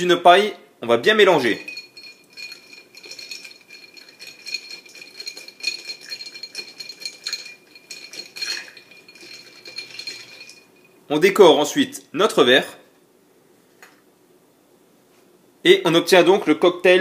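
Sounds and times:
ice cubes clinking in a glass: 1.4 - 11.0
faint ring from glass: 1.4 - 11.1.

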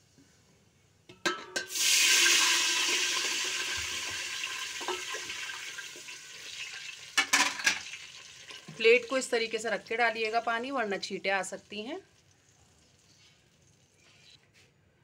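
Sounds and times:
water hissing in hot oil: 1.7 - 9.4.

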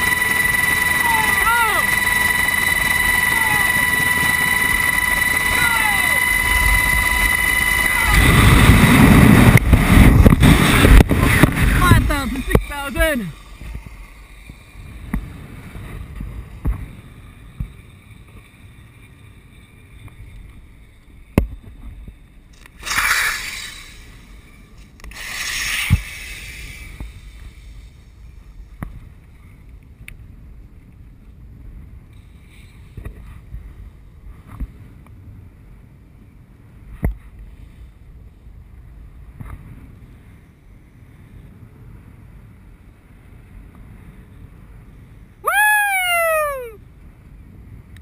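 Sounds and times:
wind rushing over microphone: 0.0 - 17.9.

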